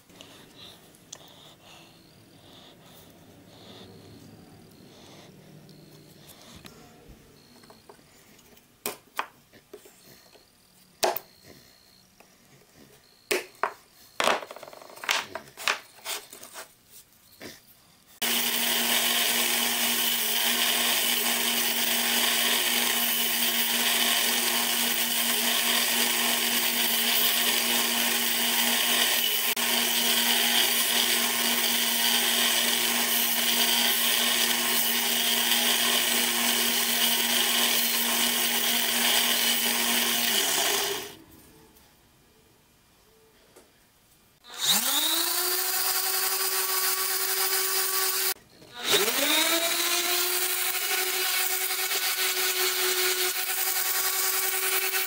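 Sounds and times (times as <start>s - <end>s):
belt sander humming: 18.2s - 41.2s, 44.5s - 55.0s.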